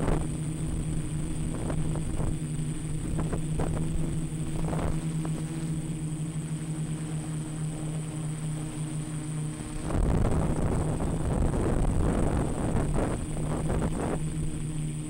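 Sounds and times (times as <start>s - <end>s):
wind noise: 0.0s - 5.5s, 9.6s - 15.0s
quadcopter propellers buzzing: 0.0s - 15.0s.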